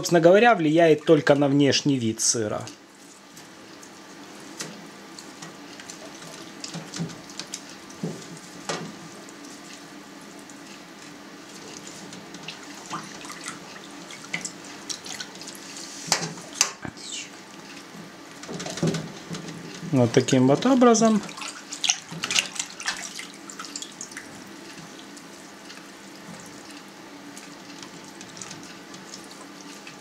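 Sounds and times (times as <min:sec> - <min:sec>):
hands splashing in liquid: 0:21.3 - 0:24.2.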